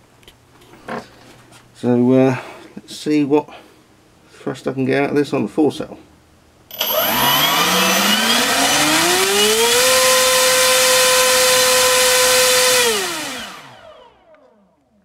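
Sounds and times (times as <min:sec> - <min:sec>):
electric motor propeller whirring: 0:06.7 - 0:14.6.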